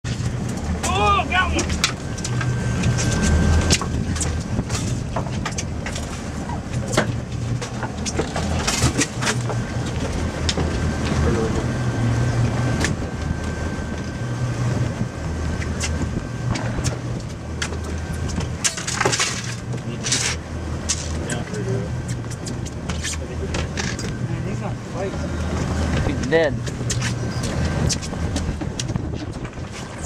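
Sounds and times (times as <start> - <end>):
boat engine humming: 0.0 - 30.0
wind noise on microphone: 1.5 - 19.1, 25.2 - 30.0.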